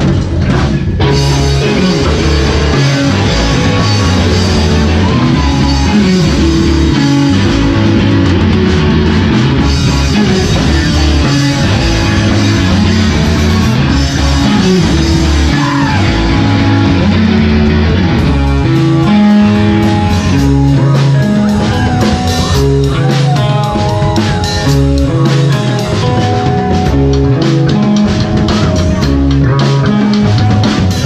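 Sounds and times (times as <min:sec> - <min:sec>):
drums: 0:00.0 - 0:31.0
electric guitar: 0:00.0 - 0:31.0.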